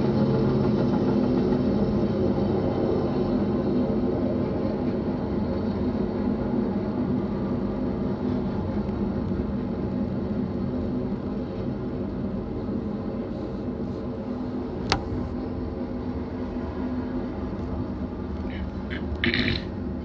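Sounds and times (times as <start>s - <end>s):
freight train rumbling past: 0.0s - 20.0s
sharp click: 14.8s - 15.2s.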